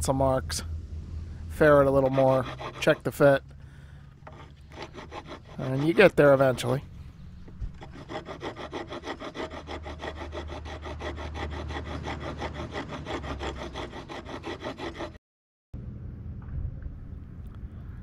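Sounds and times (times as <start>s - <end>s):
wood rasp scraping wood: 1.6s - 3.4s, 4.2s - 15.2s.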